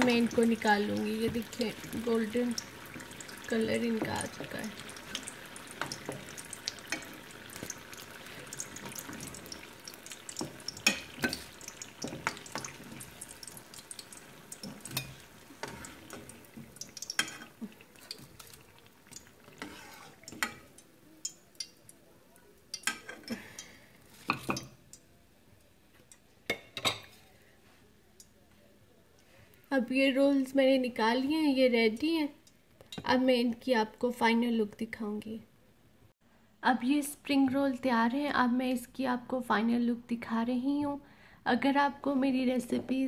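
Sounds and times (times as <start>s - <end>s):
food sizzling in hot oil: 0.0s - 21.8s
metal spatula scraping a pan: 19.4s - 20.6s.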